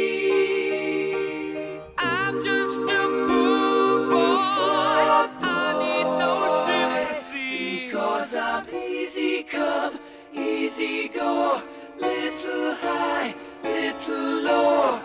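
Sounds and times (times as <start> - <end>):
a cappella voices singing in harmony: 0.0 - 15.0.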